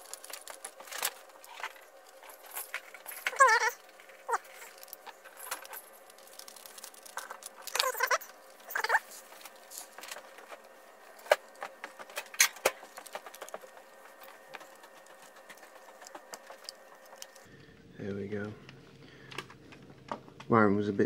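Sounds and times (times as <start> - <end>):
plastic case handling: 0.0 - 17.4
hands working wires clicking: 0.0 - 17.5
short wavering squeaks: 1.5 - 9.2.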